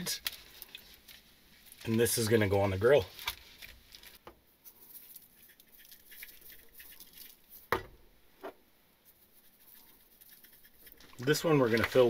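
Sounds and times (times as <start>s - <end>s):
seasoning grains pattering: 0.0s - 7.7s, 9.0s - 12.0s.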